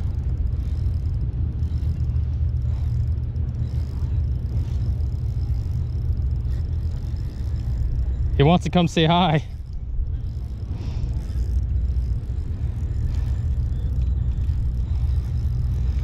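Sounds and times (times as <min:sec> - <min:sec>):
outboard engine idling: 0:00.0 - 0:16.0.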